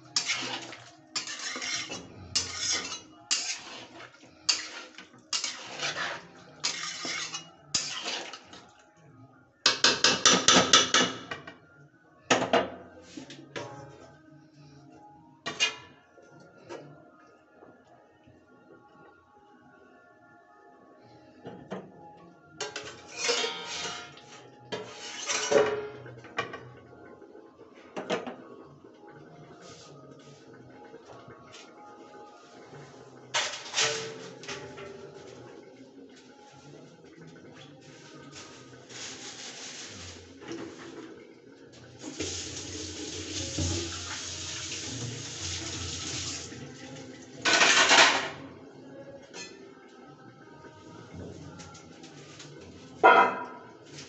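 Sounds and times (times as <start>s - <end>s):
faint background music: 0.0s - 54.0s
metal spoon scraping iron pan: 0.2s - 8.4s, 22.7s - 25.7s
running water: 34.0s - 48.4s.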